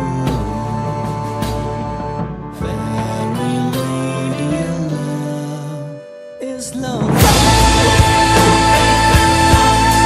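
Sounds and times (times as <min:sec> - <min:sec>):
background music: 0:00.0 - 0:10.0
steady drum beat: 0:07.0 - 0:10.0.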